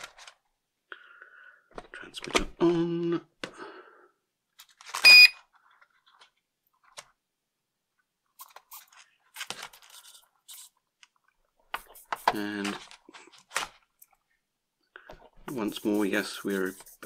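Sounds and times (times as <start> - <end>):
short electronic beep: 5.0 - 5.4.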